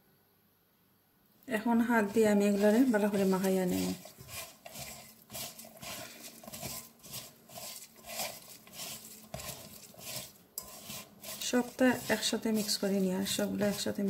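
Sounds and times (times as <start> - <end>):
onions scraping in metal pot: 1.6 - 14.0.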